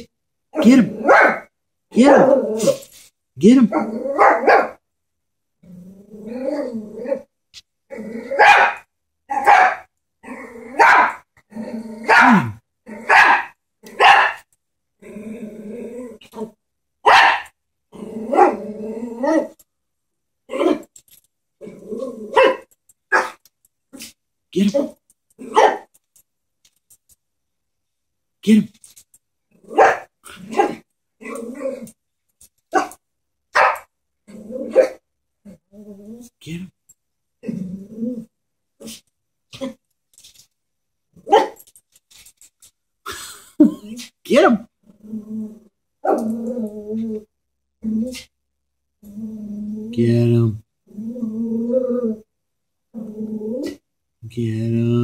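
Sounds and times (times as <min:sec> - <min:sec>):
small dog barking: 0:01.0 - 0:01.5, 0:04.2 - 0:04.8, 0:08.4 - 0:09.9, 0:10.8 - 0:11.2, 0:12.1 - 0:12.4, 0:13.1 - 0:14.4, 0:17.0 - 0:17.5, 0:22.3 - 0:23.4, 0:25.5 - 0:25.9, 0:29.7 - 0:30.8, 0:32.7 - 0:33.0, 0:33.6 - 0:33.9, 0:41.3 - 0:41.6
small dog growling: 0:05.6 - 0:07.3, 0:07.9 - 0:08.4, 0:11.4 - 0:13.2, 0:15.0 - 0:16.6, 0:17.9 - 0:19.6, 0:21.6 - 0:22.4, 0:29.6 - 0:32.0, 0:34.2 - 0:36.3, 0:37.4 - 0:39.0, 0:44.8 - 0:48.3, 0:49.0 - 0:50.0, 0:50.8 - 0:52.3, 0:52.9 - 0:53.8.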